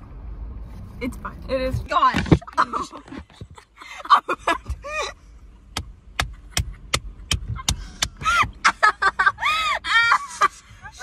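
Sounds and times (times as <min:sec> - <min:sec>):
women laughing hysterically: 0:02.4 - 0:05.2, 0:06.3 - 0:11.0.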